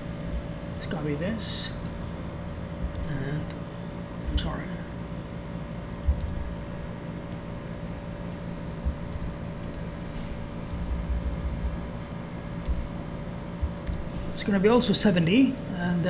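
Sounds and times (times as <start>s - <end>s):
background hum with held tone: 0.0s - 16.0s
dull low thumps: 2.4s - 3.1s, 10.6s - 12.0s, 12.6s - 12.9s, 13.6s - 14.1s.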